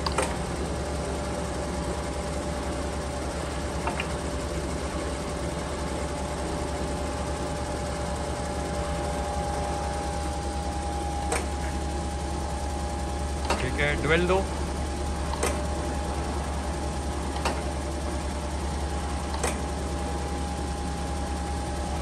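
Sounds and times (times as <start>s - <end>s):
grinder machine humming: 0.0s - 22.0s
spindle whine: 0.0s - 22.0s
short click: 19.3s - 19.6s.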